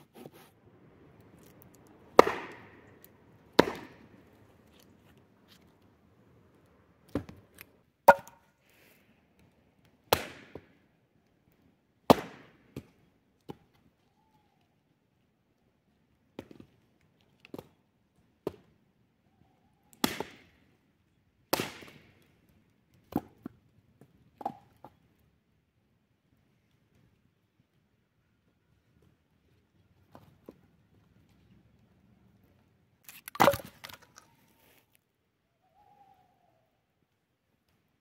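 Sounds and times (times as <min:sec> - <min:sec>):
wood being chopped: 0:02.2 - 0:02.9, 0:03.6 - 0:04.1, 0:08.1 - 0:08.4, 0:10.1 - 0:10.7, 0:12.1 - 0:12.9, 0:20.0 - 0:20.4, 0:21.5 - 0:22.0, 0:33.2 - 0:34.0.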